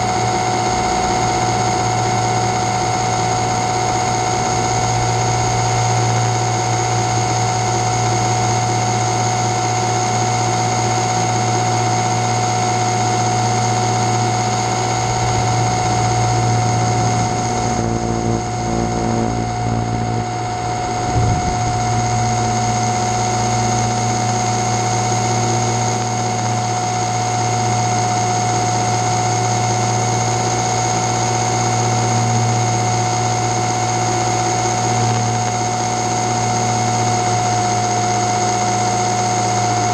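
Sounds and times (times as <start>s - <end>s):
drone motors whining: 0.0s - 39.9s.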